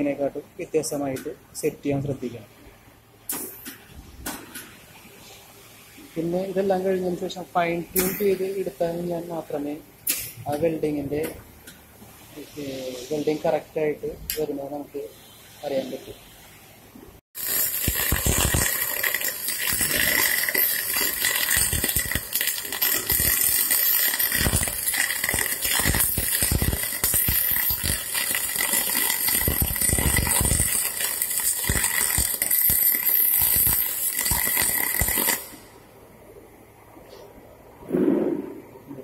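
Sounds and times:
welding arc crackling hiss: 0:03.3 - 0:10.8, 0:17.4 - 0:35.8.

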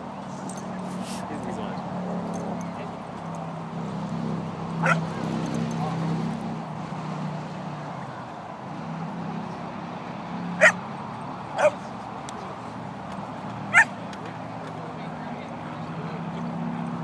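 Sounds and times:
dogs yelping in play: 0:04.8 - 0:05.1, 0:10.6 - 0:10.8, 0:11.6 - 0:11.8, 0:13.7 - 0:14.0.

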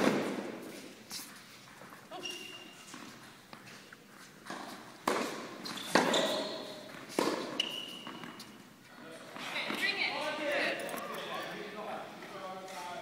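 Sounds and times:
tennis ball bouncing on court: 0:04.4 - 0:08.5
tennis ball hit by racket: 0:04.5 - 0:06.3, 0:07.1 - 0:08.3.

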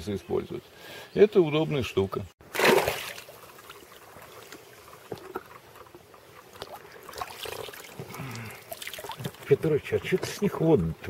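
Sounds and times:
river water lapping: 0:02.4 - 0:09.6.

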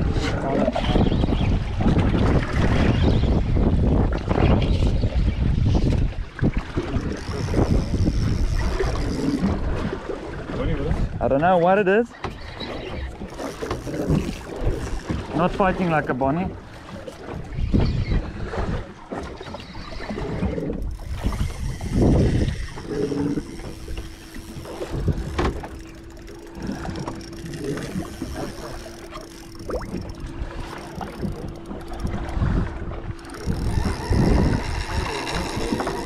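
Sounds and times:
water on boat hull: 0:00.0 - 0:36.0
wind: 0:00.0 - 0:36.0
low rumbles and knocks: 0:20.4 - 0:36.0.

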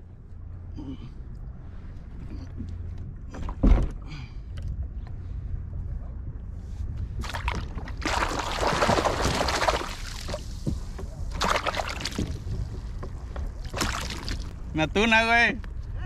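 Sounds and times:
wind rumble on microphone: 0:00.0 - 0:16.0
water splashing: 0:07.2 - 0:14.7.

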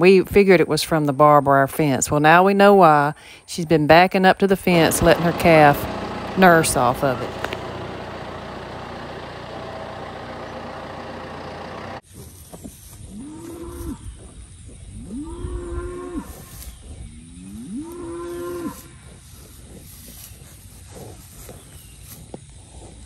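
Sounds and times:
tractor engine humming: 0:04.6 - 0:13.0
calves mooing: 0:17.5 - 0:19.0.

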